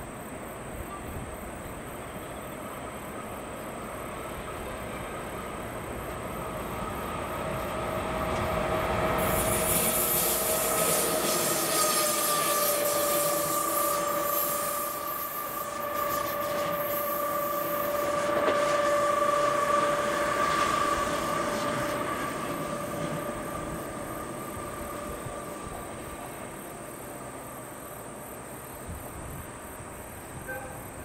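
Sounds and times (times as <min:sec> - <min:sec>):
wheels rumbling on rails: 0:02.4 - 0:31.0
diesel locomotive engine running: 0:03.5 - 0:27.0.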